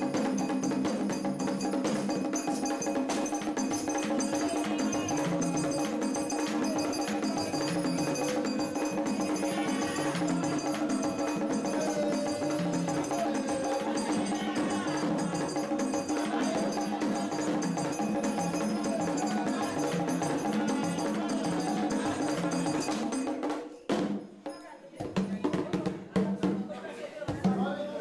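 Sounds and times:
driving drum rhythm: 0:00.0 - 0:28.0.

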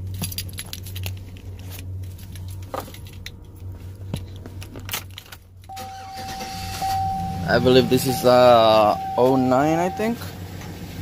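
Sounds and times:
keys jingling in ignition: 0:00.0 - 0:10.2
low steady hum: 0:00.0 - 0:11.0.

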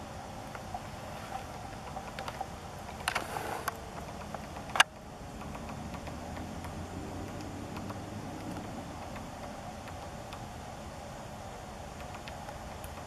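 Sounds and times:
faint low hum: 0:00.0 - 0:13.0
woodpecker tapping on bark: 0:00.6 - 0:10.5.

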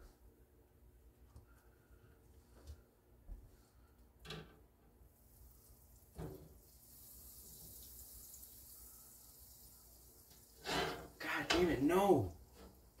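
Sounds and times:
water running from tap: 0:05.5 - 0:13.0.

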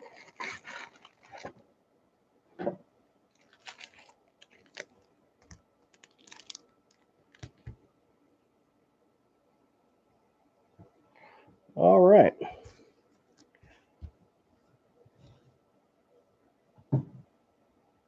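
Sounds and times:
plastic packaging crinkling: 0:00.0 - 0:01.6, 0:03.3 - 0:07.7.

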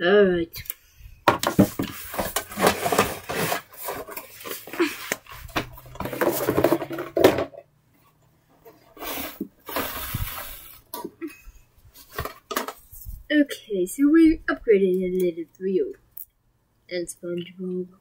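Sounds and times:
toys and boxes rustling and knocking: 0:01.2 - 0:11.3, 0:11.9 - 0:13.2.

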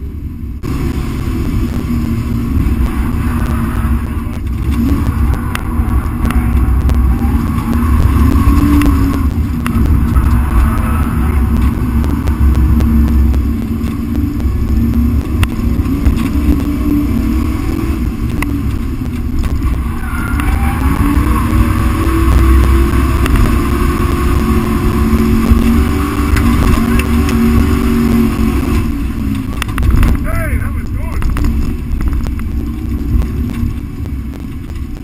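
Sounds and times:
car engine revving: 0:00.0 - 0:35.0.

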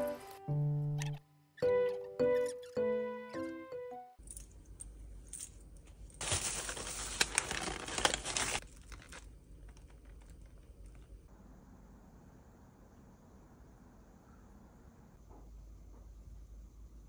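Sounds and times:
plastic and paper bags crinkling: 0:06.1 - 0:11.2.

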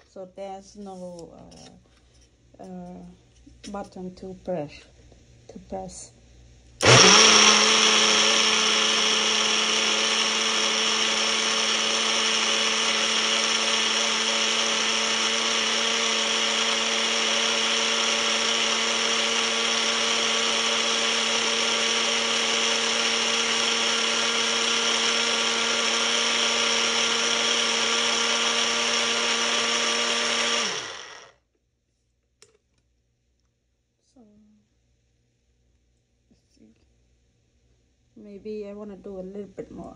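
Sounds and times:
blender motor running: 0:06.8 - 0:31.4.

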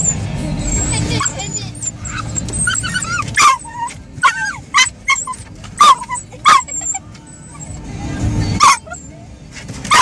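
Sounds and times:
dog barking: 0:03.4 - 0:06.8, 0:08.6 - 0:09.0.

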